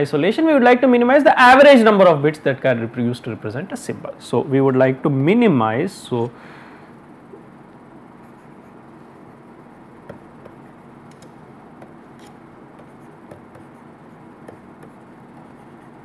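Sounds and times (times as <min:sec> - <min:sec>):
low electrical hum: 0:00.0 - 0:16.0
stylus tapping on tablet screen: 0:10.0 - 0:15.5.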